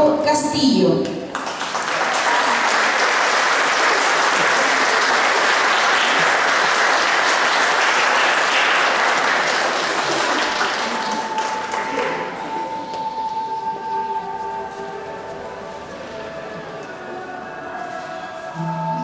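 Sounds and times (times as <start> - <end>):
audience applauding: 1.3 - 13.0.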